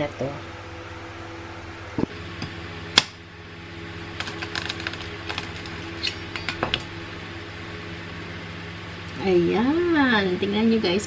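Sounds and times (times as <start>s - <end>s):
steady low hum: 0.0s - 11.0s
egg shell crackling: 4.2s - 6.9s.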